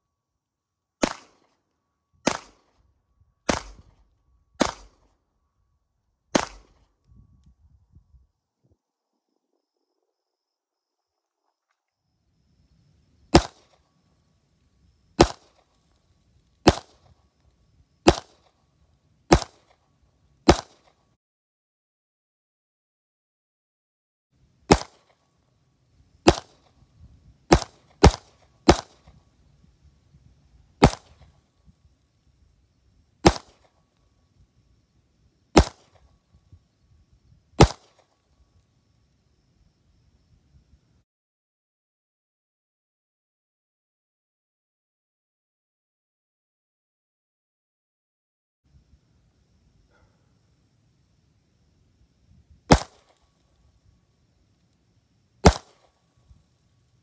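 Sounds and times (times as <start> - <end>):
handgun shots: 1.0 - 1.5, 2.3 - 2.7, 3.5 - 4.0, 4.6 - 5.1, 6.4 - 6.8, 13.3 - 13.8, 15.2 - 15.6, 16.6 - 17.0, 18.1 - 18.5, 19.3 - 19.8, 20.5 - 20.9, 24.7 - 25.1, 26.3 - 26.7, 27.5 - 29.2, 30.8 - 31.2, 33.2 - 33.7, 35.6 - 36.0, 37.6 - 38.1, 52.7 - 53.2, 55.4 - 55.9.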